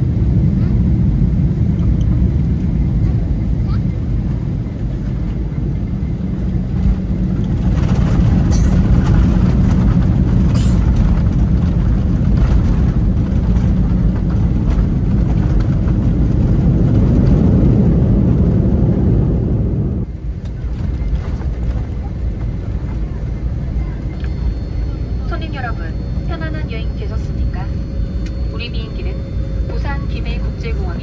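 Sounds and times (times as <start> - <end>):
airliner cabin roar: 0.0 - 31.0.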